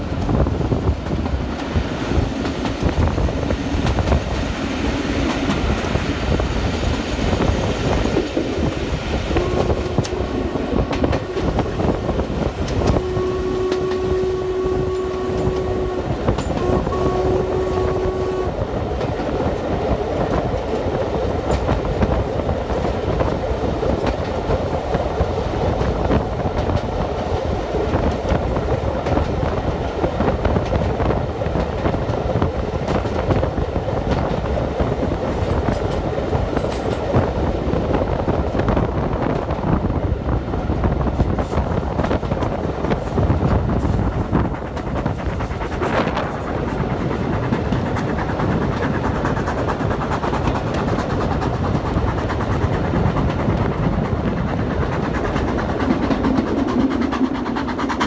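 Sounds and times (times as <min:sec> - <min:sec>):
train rumble and wheel clatter: 0:00.0 - 0:58.0
steam whistle blasts: 0:09.3 - 0:12.0, 0:12.8 - 0:18.8.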